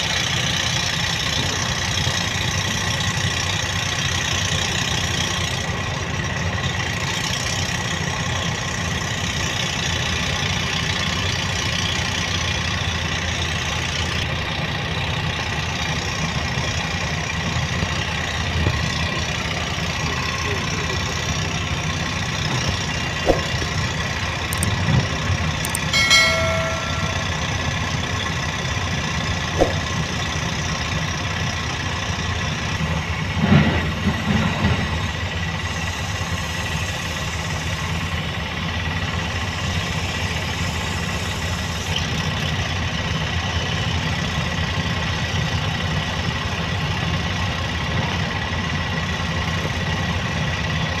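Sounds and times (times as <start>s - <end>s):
heavy diesel machinery running: 0.0s - 51.0s
knocks: 29.6s - 29.9s.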